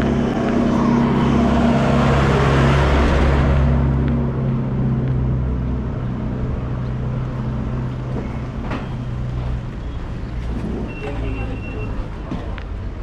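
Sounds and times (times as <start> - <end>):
street noise: 0.0 - 13.0
vehicle engine humming: 0.0 - 13.0.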